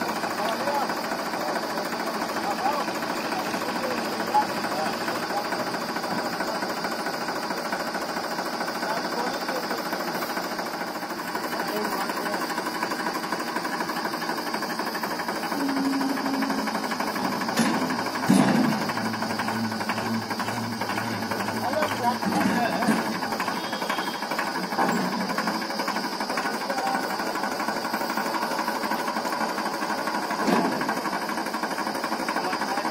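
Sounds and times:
tractor diesel engine running: 0.0s - 32.9s
sharp knocks: 17.5s - 21.1s.

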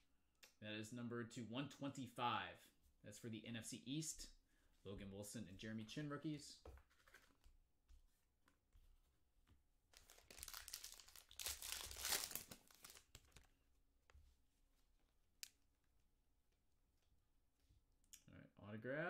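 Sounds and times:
foil pack tearing and crinkling: 10.0s - 13.0s.

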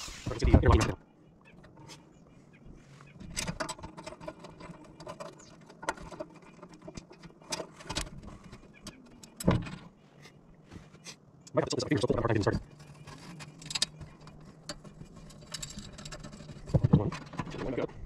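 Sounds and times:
small metal parts clinking: 12.7s - 17.8s.

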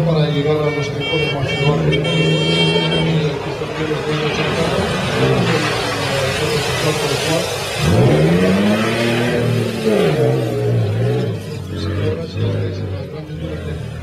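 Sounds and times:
car engine revving: 1.7s - 14.0s
water spraying: 3.0s - 12.3s.

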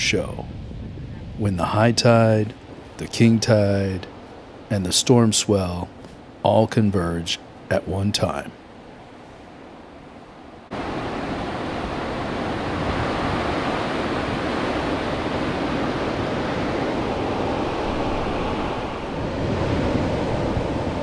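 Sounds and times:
ocean surf washing on sand: 10.7s - 21.0s.

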